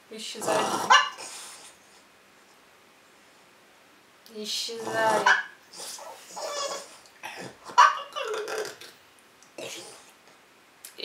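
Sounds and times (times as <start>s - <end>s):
dog whining and yelping: 5.2s - 8.4s.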